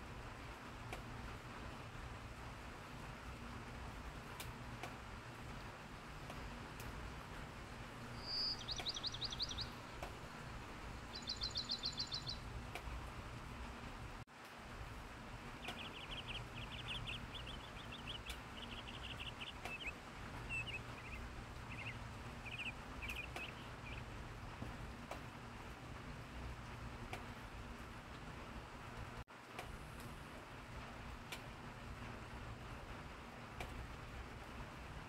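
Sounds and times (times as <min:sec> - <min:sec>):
light rain hiss: 0:00.0 - 0:35.0
songbirds trilling: 0:08.0 - 0:12.8, 0:15.2 - 0:24.6.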